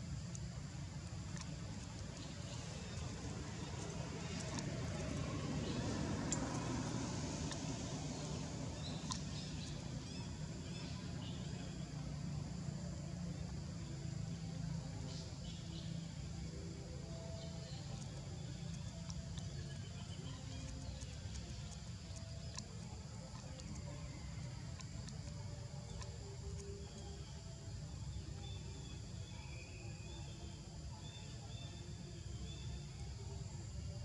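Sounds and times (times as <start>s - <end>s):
steady low rumble: 0.0s - 30.9s
insect drone: 0.0s - 34.0s
faint clicks: 17.9s - 27.2s.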